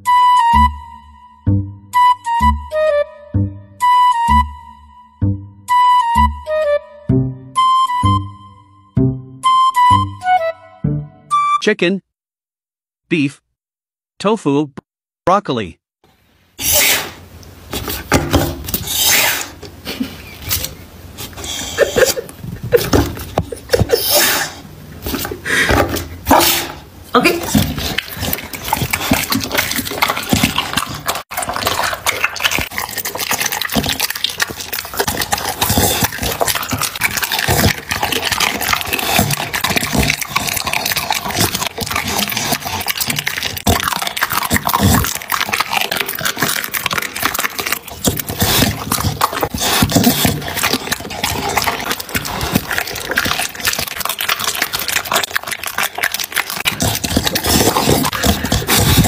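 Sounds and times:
dog chewing and smacking: 19.5s - 24.1s, 25.0s - 59.0s
bones crunching and clicking: 27.4s - 59.0s.

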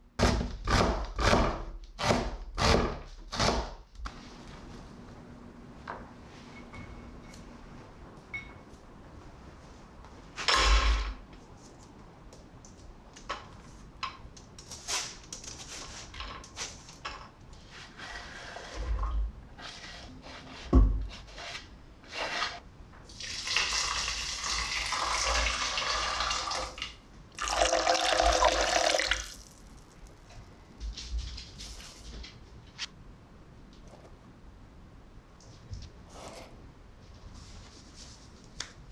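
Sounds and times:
scraping on wooden board: 19.6s - 22.6s
water pouring into pot: 23.1s - 29.5s.

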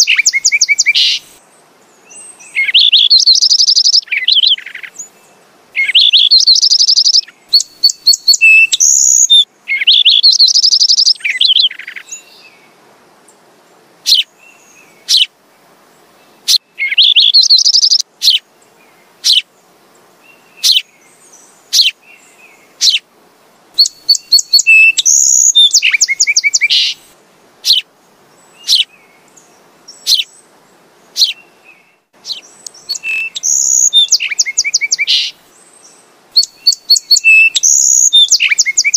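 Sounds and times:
sparrow chirping: 0.0s - 1.3s, 2.5s - 5.1s, 5.8s - 12.3s, 14.1s - 14.3s, 15.0s - 15.3s, 16.4s - 18.4s, 19.2s - 19.5s, 20.6s - 20.9s, 21.7s - 22.0s, 22.8s - 23.0s, 23.8s - 27.0s, 27.6s - 27.8s, 28.5s - 29.0s, 29.9s - 30.4s, 31.1s - 31.5s, 32.2s - 35.4s, 36.4s - 38.9s.

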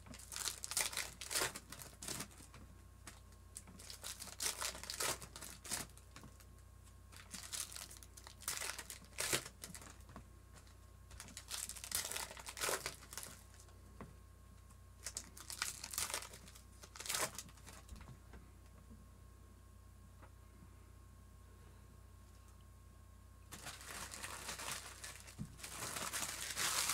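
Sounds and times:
foil wrappers crinkling and tearing: 0.0s - 6.5s, 7.1s - 13.7s, 15.0s - 18.1s, 23.5s - 26.9s.

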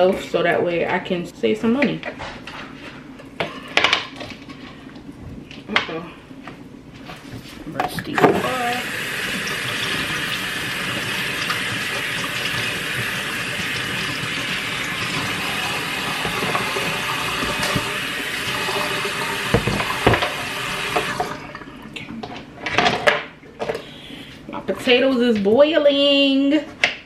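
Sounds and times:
tap running into sink: 8.1s - 21.4s.

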